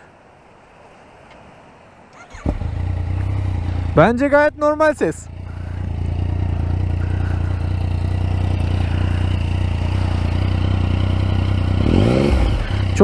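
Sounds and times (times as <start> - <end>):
motorcycle idling: 2.2 - 13.0.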